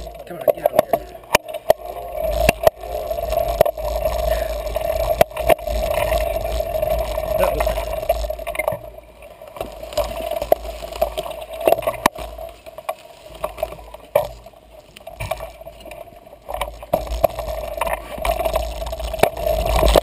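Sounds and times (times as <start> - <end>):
steady hum: 0.0 - 9.2
bike clicking and rattling: 0.0 - 20.0
wind rumbling on microphone: 1.7 - 8.9.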